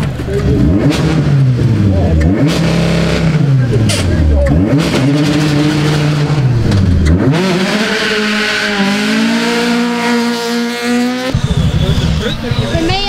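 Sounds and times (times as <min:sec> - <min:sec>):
rally car engine revving: 0:00.0 - 0:13.0.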